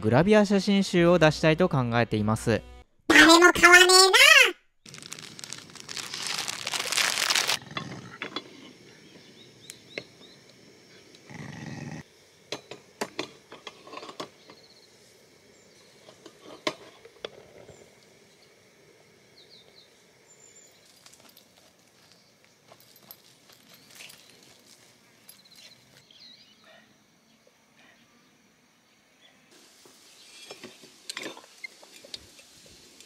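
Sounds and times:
plastic packaging crinkling: 4.9s - 7.6s.

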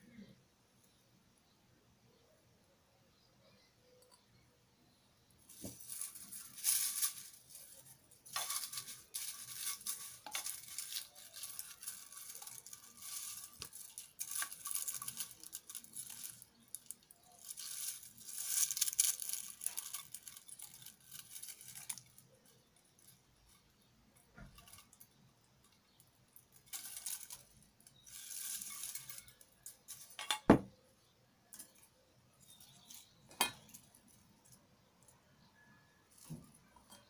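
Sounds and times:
paper rustling: 5.5s - 22.2s.

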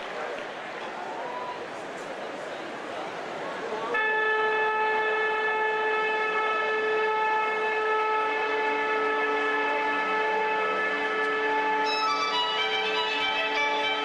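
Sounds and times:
long held chord of steady tones: 3.9s - 14.0s
low notes: 4.4s - 14.0s.

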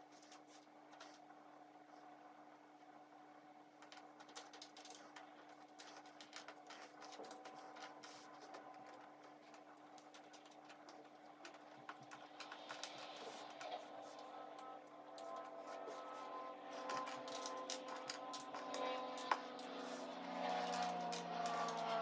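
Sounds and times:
puzzle pieces clicking and rustling: 16.8s - 19.8s.

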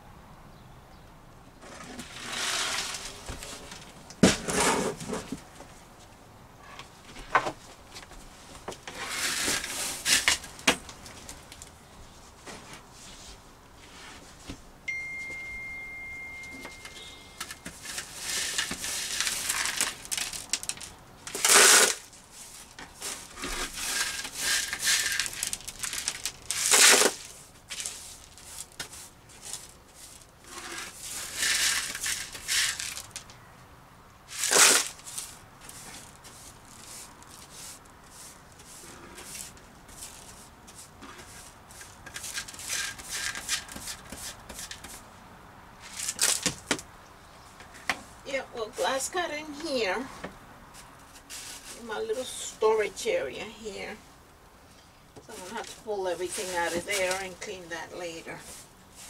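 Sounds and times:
brush sweeping broken glass: 2.0s - 3.5s, 16.7s - 33.2s, 34.3s - 44.8s
steady high tone: 14.9s - 17.7s.

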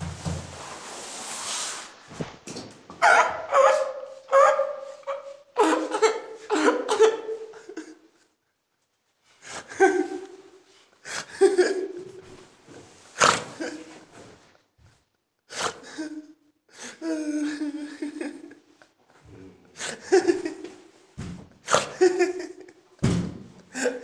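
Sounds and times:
person laughing hard: 4.3s - 8.1s, 9.6s - 10.5s, 11.2s - 12.2s, 17.0s - 18.7s, 19.8s - 20.8s, 21.7s - 22.8s.

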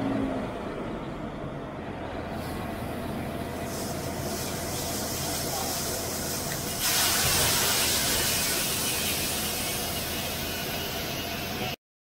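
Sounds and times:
engine hum: 0.0s - 11.8s
grain pouring hiss: 3.6s - 11.0s.

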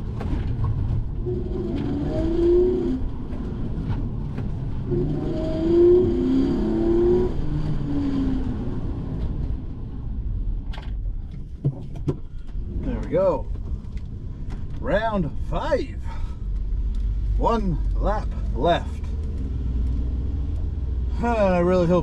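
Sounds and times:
car engine revving: 0.0s - 9.7s
low road rumble: 0.0s - 22.0s.

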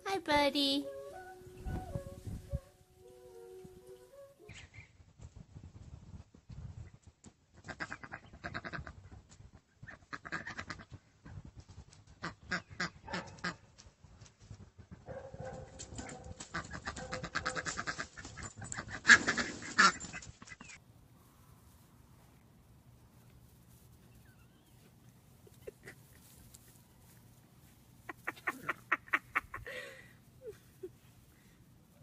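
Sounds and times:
ducks quacking: 7.6s - 9.0s, 28.0s - 29.7s.

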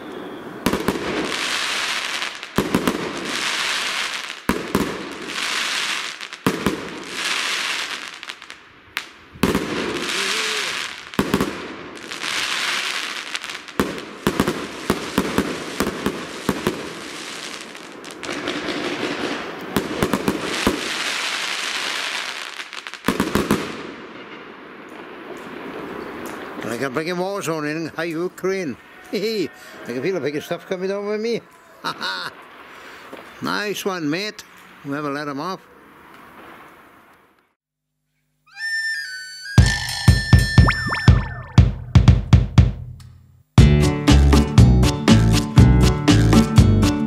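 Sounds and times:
firework bangs: 0.0s - 28.7s, 35.8s - 37.3s
fireworks hissing and crackling: 0.0s - 29.4s, 30.8s - 37.6s.

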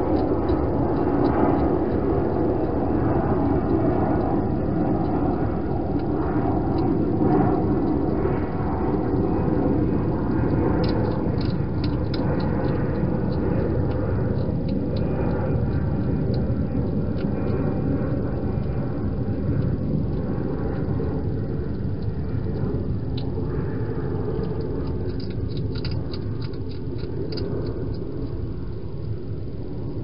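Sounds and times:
hedgehog eating: 0.0s - 29.3s
low rumbling noise: 0.0s - 30.0s
small sharp clicks: 10.3s - 18.9s, 21.7s - 29.2s.

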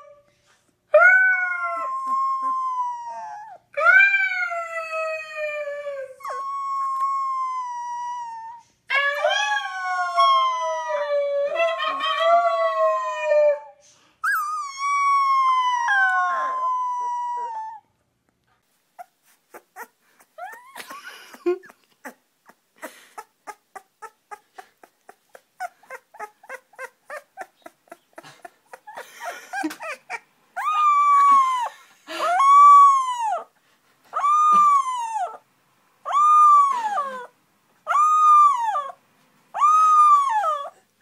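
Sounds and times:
puppies howling: 14.4s - 17.8s, 25.6s - 28.0s, 28.7s - 33.5s, 34.2s - 35.4s, 36.1s - 37.3s, 37.9s - 39.0s, 39.6s - 40.8s
small squeaks: 22.8s - 31.4s.

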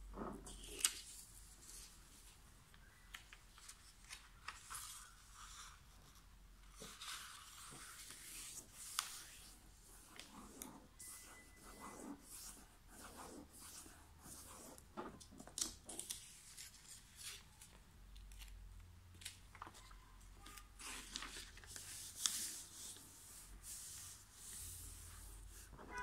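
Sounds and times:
paper rustling and crinkling: 0.2s - 5.6s, 15.1s - 26.0s
sharp paper crackles: 15.5s - 22.9s.

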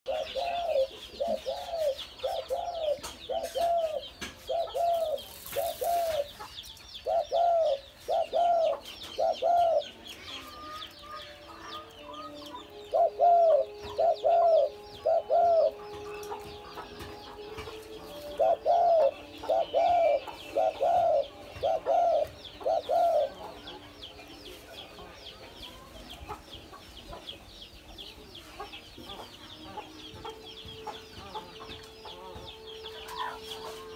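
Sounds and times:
dove cooing: 0.1s - 6.4s, 7.0s - 10.8s, 12.1s - 23.7s
small birds chirping: 0.1s - 33.9s.

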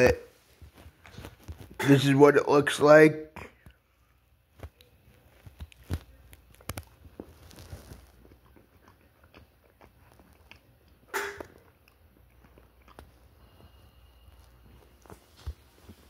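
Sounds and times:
person chewing chocolate: 4.7s - 15.2s.

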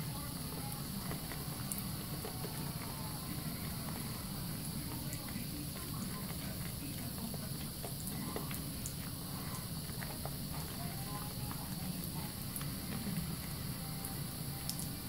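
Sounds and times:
faucet running into sink: 0.0s - 15.0s
soapy hands squelching lather: 0.0s - 15.0s.

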